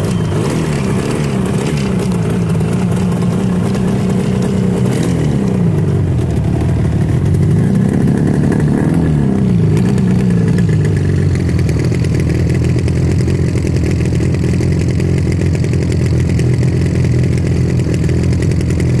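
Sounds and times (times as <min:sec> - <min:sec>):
motorcycle engine revving and idling: 0:00.0 - 0:19.0.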